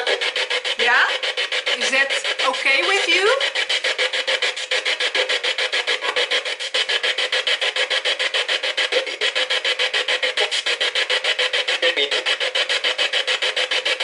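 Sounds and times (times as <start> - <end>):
radio static chopping: 0.0 - 14.0.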